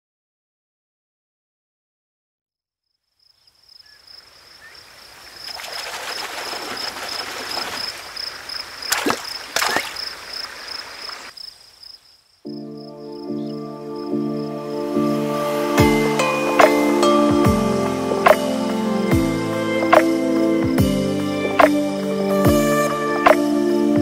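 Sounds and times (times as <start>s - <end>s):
sharp cracks: 5.5s - 11.3s
music: 12.5s - 24.0s.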